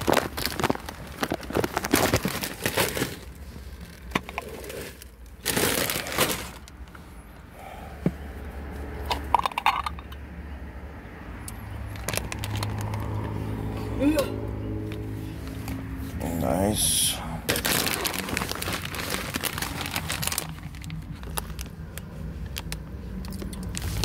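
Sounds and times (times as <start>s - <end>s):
plastic seal crinkling and tearing: 0.0s - 6.8s, 12.0s - 13.2s, 17.4s - 24.0s.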